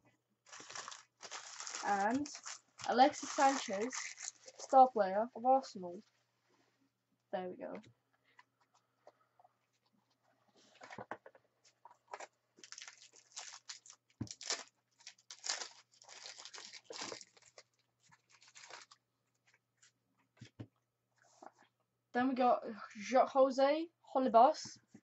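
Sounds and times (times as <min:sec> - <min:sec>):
cards and foil wrappers crinkling: 0:00.5 - 0:04.8, 0:12.1 - 0:19.0.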